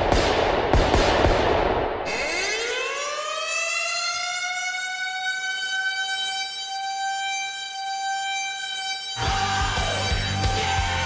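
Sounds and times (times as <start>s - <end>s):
goal horn blast: 4.6s - 11.0s.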